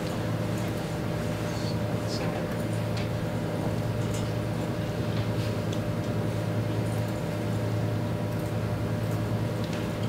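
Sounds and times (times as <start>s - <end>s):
room tone hum and hiss: 0.0s - 10.0s.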